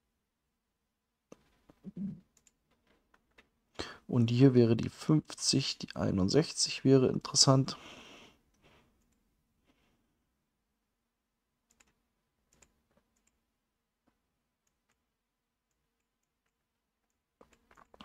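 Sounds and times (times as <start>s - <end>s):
faint computer mouse clicks: 11.7s - 13.4s.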